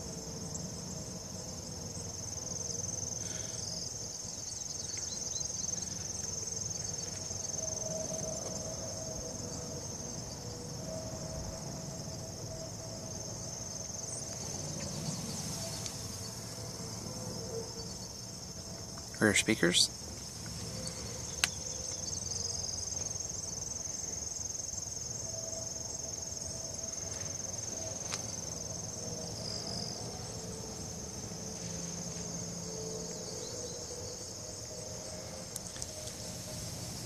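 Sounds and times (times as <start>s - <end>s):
high-pitched insect chorus: 0.0s - 37.0s.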